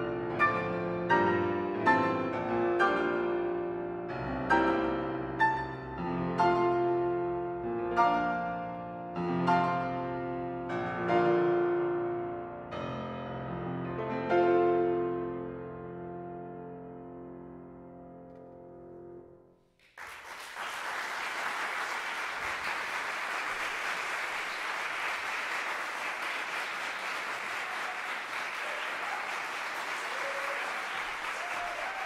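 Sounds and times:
audience applause: 19.8 - 32.0.

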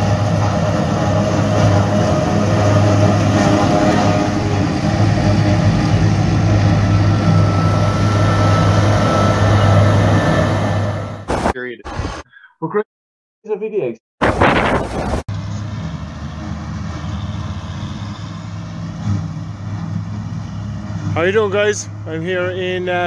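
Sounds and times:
harvester engine drone: 0.0 - 11.4, 15.3 - 23.0
faint high whine: 5.8 - 11.3.

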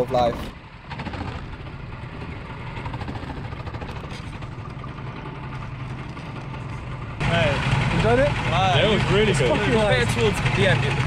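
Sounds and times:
kart engines running: 0.0 - 11.0.

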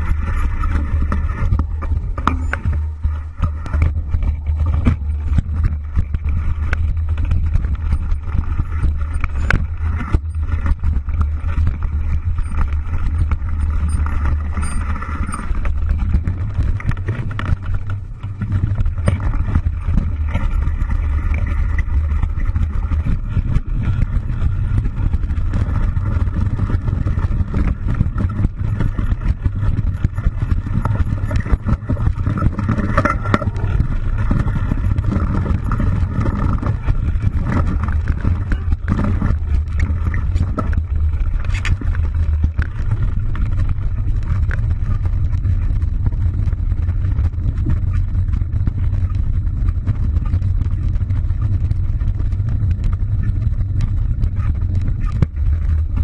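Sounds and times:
knocks and rattles over bumps: 0.0 - 56.0
van engine rumble: 0.0 - 56.0.

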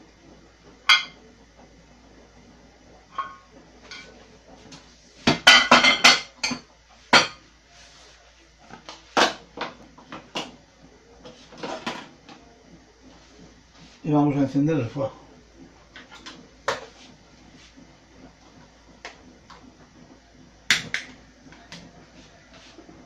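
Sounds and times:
utensils knocking against a pan: 5.3 - 7.4.

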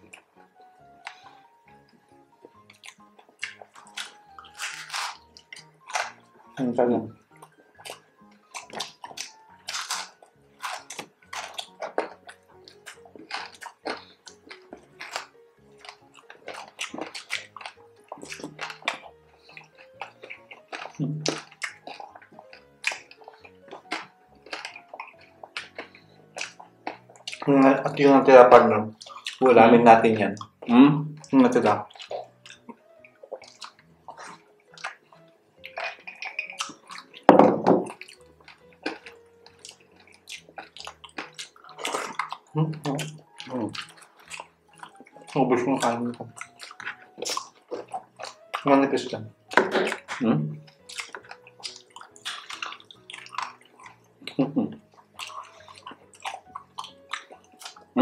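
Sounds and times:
light cheerful background music: 0.0 - 58.0
crunchy chewing: 2.4 - 27.6, 28.9 - 29.4, 30.4 - 58.0
person gulping juice: 15.9 - 27.5, 38.8 - 45.4.

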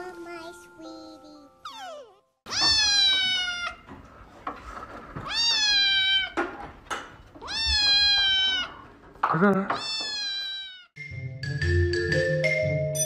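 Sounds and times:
kitten meowing: 1.6 - 3.8, 5.3 - 6.4, 7.4 - 8.8, 9.8 - 11.0.

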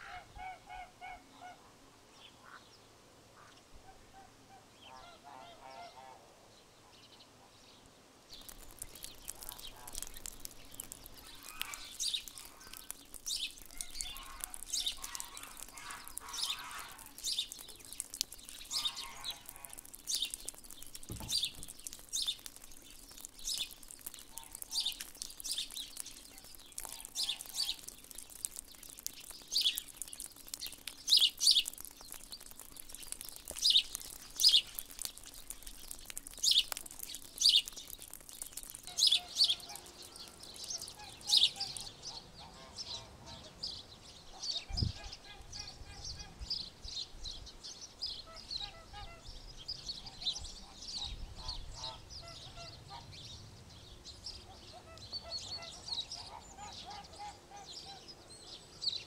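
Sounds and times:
small birds chirping: 7.0 - 59.0
softer lower bird calls: 8.4 - 22.9, 32.9 - 43.5, 48.2 - 49.4.

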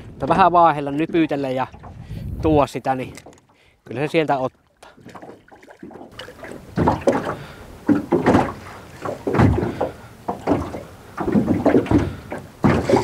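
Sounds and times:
waves slapping metal boat hull: 0.0 - 13.0.

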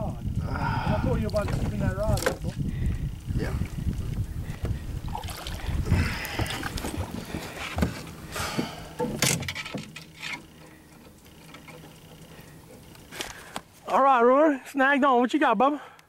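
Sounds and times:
wind on microphone: 0.0 - 8.8
water splashing: 4.7 - 13.5.

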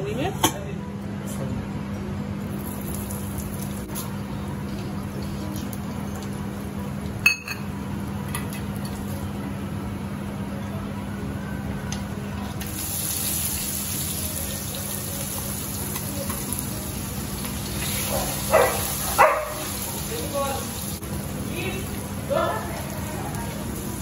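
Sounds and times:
oil sizzling: 2.5 - 9.4, 12.6 - 24.0.

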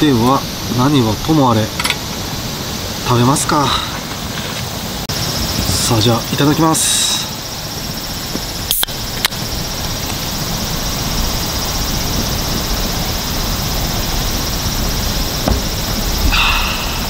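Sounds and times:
steady rushing noise: 0.0 - 17.0
knocks on wooden table: 15.4 - 15.8.

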